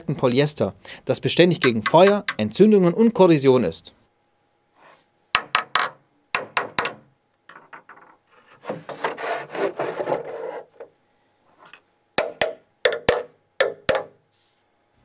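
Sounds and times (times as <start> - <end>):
sharp taps on plastic housing: 1.6 - 2.4
housing scraping on work surface: 4.8 - 5.1, 7.9 - 10.9, 11.5 - 11.8.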